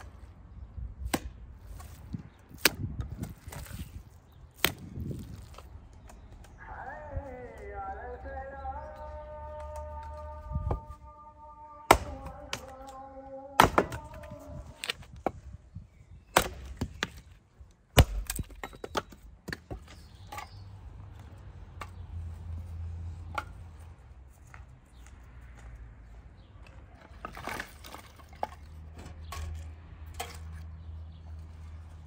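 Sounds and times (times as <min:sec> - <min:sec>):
hard chopping blows: 0:11.9 - 0:12.9, 0:13.6 - 0:15.4.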